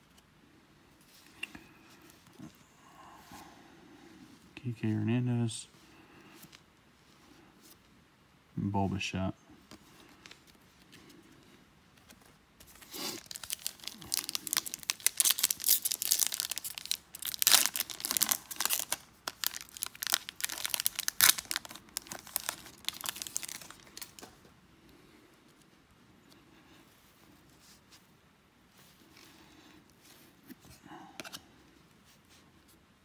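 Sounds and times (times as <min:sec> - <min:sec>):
plastic wrapper tearing and crumpling: 0:12.7 - 0:24.4.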